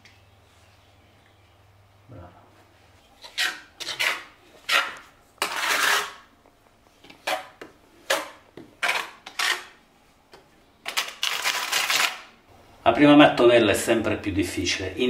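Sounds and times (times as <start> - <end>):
trowel scraping tile adhesive: 3.2 - 6.3, 7.1 - 9.8.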